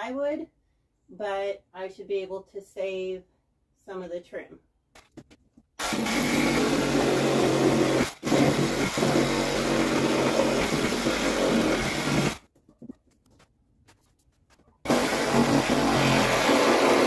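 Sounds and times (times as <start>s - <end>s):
reciprocating saw cutting plywood: 5.8s - 12.4s, 14.8s - 17.0s.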